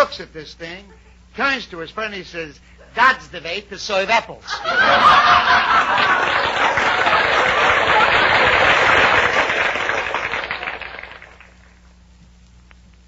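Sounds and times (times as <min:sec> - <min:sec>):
audience laughing and applauding: 0:04.5 - 0:11.6.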